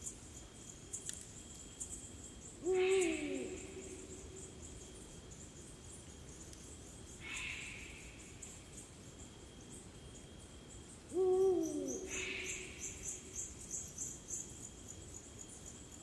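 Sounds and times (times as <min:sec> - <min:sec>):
insects chirping: 0:00.0 - 0:16.0
owl deep hoot: 0:02.6 - 0:04.1, 0:11.2 - 0:12.7.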